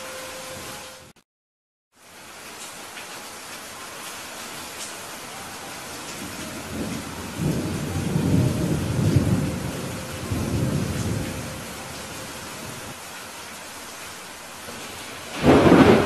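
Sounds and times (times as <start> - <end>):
rain hissing: 0.0 - 1.2, 1.9 - 16.0
thunder rumbling: 6.0 - 13.0, 14.7 - 16.0.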